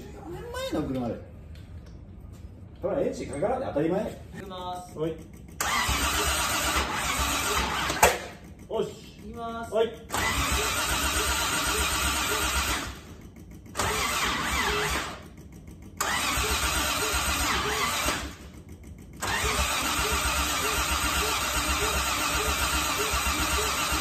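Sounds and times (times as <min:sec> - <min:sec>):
engine cranking without starting: 0:04.8 - 0:24.0.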